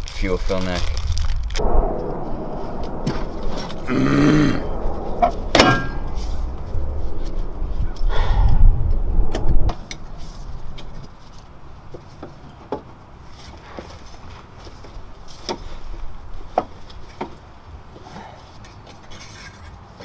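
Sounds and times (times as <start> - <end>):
low rumble: 0.0 - 12.0.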